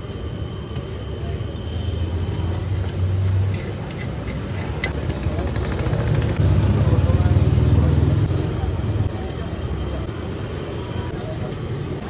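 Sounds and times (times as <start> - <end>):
vehicle engine idling: 1.7 - 12.0.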